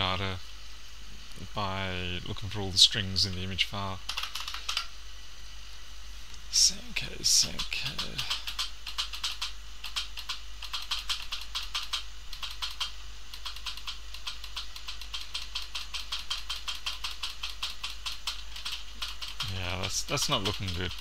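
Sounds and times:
steady low hum: 0:00.0 - 0:21.0
keyboard keys clicking: 0:04.1 - 0:04.9, 0:07.6 - 0:21.0.

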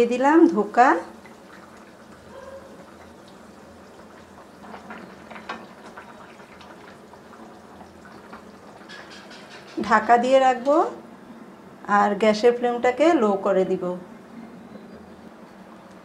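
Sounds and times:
gravy bubbling at a boil: 0:00.0 - 0:09.8
metal spatula scraping a pan: 0:08.9 - 0:09.9.

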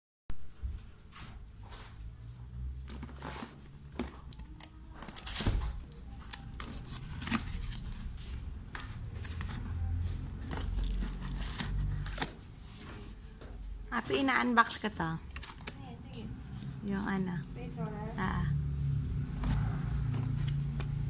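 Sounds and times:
plastic wrap crinkling and tearing: 0:02.9 - 0:12.4.

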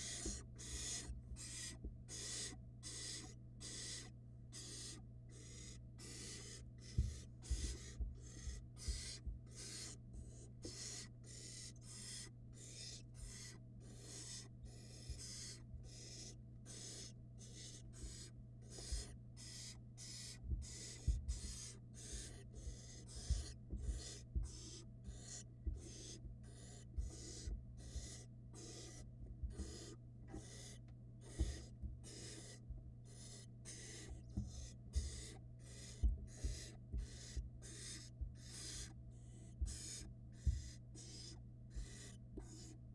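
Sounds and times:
owl nestlings hissing begging calls: 0:00.0 - 0:42.8
steady low hum: 0:00.0 - 0:42.9
soft thumps of birds shuffling: 0:34.1 - 0:35.1, 0:36.0 - 0:37.6.

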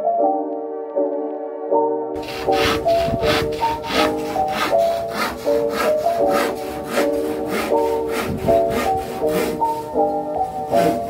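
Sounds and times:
hand saw cutting wood: 0:02.2 - 0:11.0.

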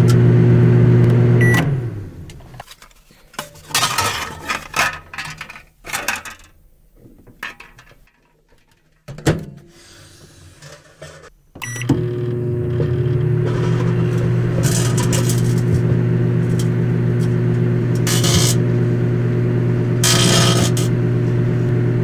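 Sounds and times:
microwave oven humming: 0:00.0 - 0:02.4, 0:11.5 - 0:22.0
keypad beeps: 0:01.4 - 0:01.6, 0:11.6 - 0:12.0
microwave beeps: 0:01.4 - 0:01.8, 0:11.6 - 0:13.4
sparks arcing: 0:18.0 - 0:18.6.

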